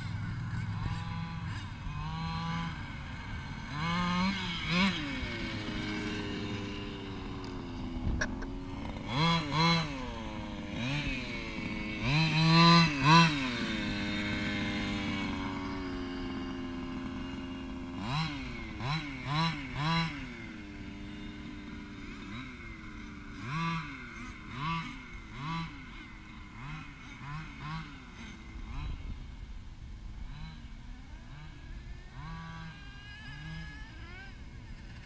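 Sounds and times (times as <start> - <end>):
small two-stroke engine revving: 0.0 - 35.0.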